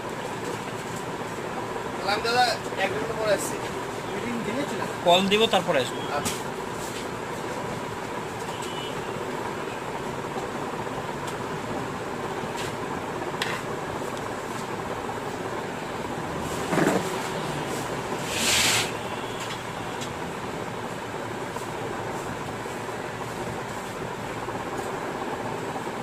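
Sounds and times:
machine-like background noise: 0.0 - 26.0
short hiss: 17.7 - 19.1.

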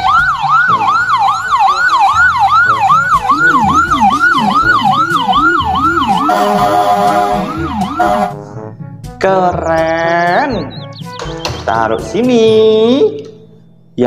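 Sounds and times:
lower-pitched siren: 0.0 - 8.4
ambulance siren wailing: 0.0 - 8.5
steady tones: 1.0 - 8.5.

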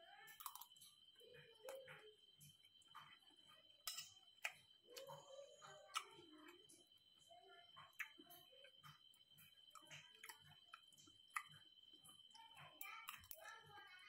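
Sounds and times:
person chewing: 0.4 - 0.7.

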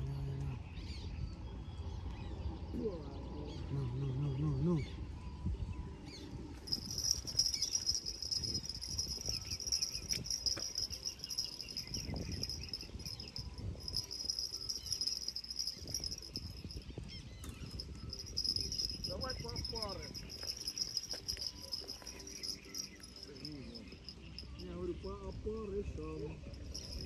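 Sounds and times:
insects chirring: 6.6 - 24.8, 26.4 - 27.0.

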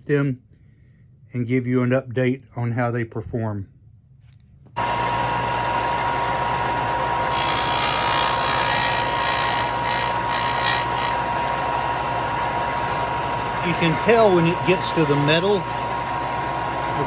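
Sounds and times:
bench sander whining: 4.8 - 17.0
bullet grinding on sanding disc: 7.3 - 11.3.

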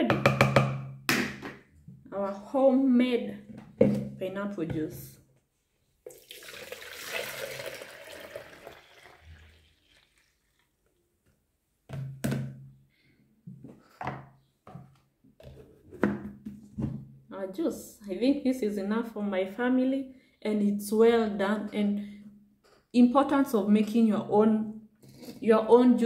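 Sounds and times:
plastic containers knocking: 0.0 - 1.7, 11.9 - 12.7, 13.5 - 17.1
juice pouring into plastic jug: 6.1 - 10.8.

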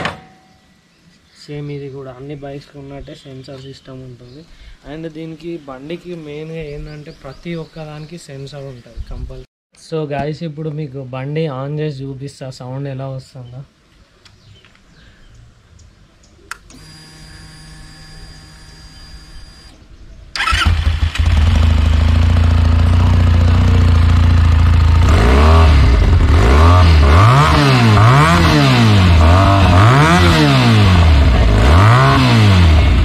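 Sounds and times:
motorcycle engine idling: 20.4 - 25.1
motorcycle engine revving: 20.4 - 33.0.

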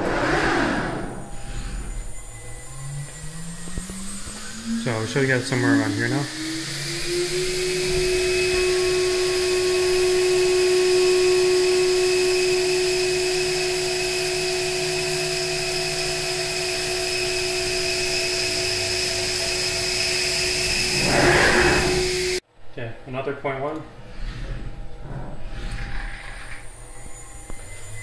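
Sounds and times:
router spindle whining: 1.0 - 22.4.

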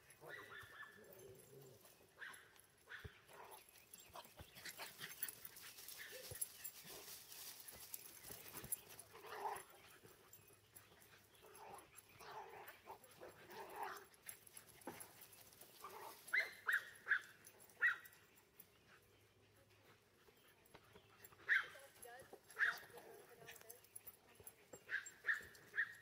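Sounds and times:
soft dog sounds: 0.0 - 26.0
small dogs yipping: 0.2 - 1.2, 2.2 - 10.4, 15.8 - 18.2, 21.1 - 21.9, 22.5 - 23.5, 24.7 - 26.0.

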